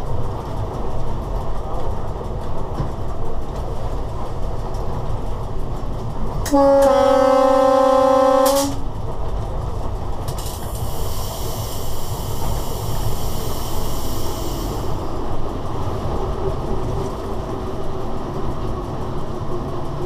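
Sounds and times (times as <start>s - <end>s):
train rumbling along track: 0.0s - 20.0s
locomotive horn blast: 6.5s - 8.8s.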